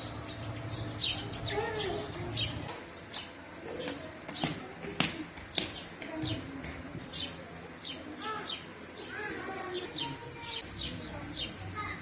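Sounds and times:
sparrows chirping: 0.0s - 12.0s
thin steady high tone: 1.6s - 12.0s.

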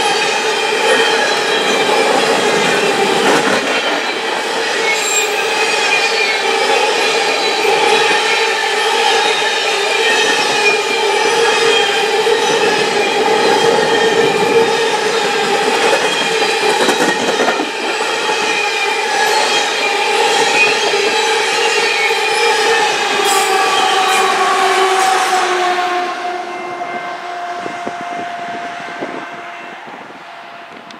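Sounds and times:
train wheels rumbling: 0.0s - 30.9s
high wheel squeal: 4.0s - 24.4s.

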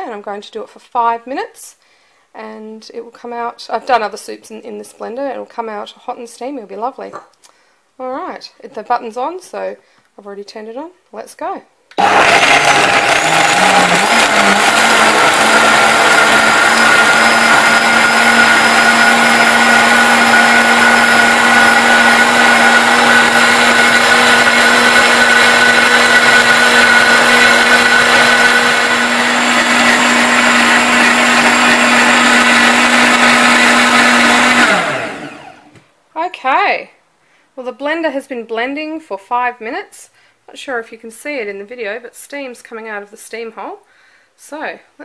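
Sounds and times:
blender motor whine: 12.0s - 35.8s.

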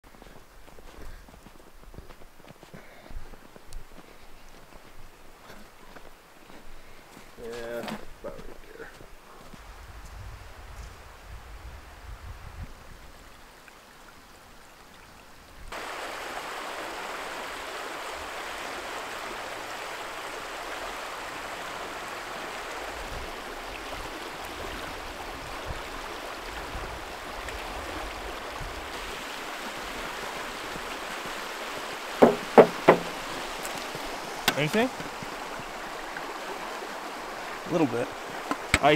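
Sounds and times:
creek water running: 0.0s - 38.9s
loud knocks: 32.2s - 33.2s.

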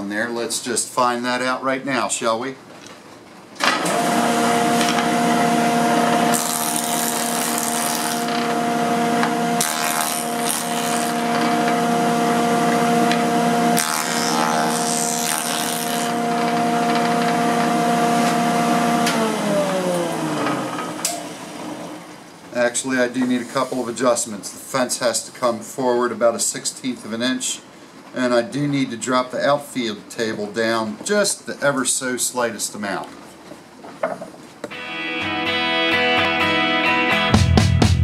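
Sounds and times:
jointer motor hum: 3.6s - 22.1s
jointer planing board rasp: 4.5s - 8.6s, 9.2s - 11.9s, 13.0s - 18.4s.

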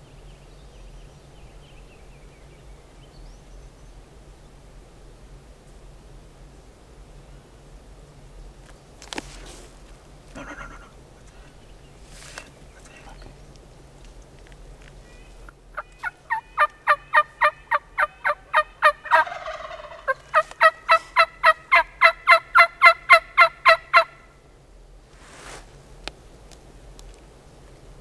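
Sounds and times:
raspy turkey call: 15.1s - 24.3s
turkey yelps: 15.7s - 24.2s.

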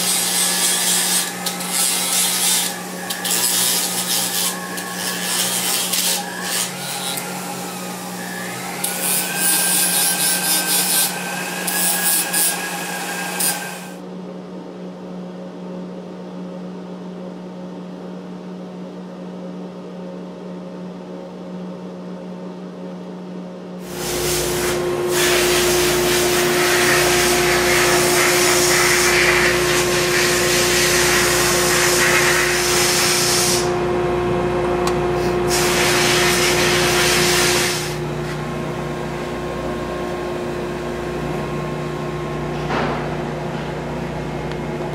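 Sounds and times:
rotary tool grinding whine: 0.0s - 14.0s, 23.8s - 33.8s
shop hum: 0.0s - 14.8s, 23.1s - 44.9s
sandblast cabinet hissing: 23.8s - 33.7s, 35.2s - 38.0s.

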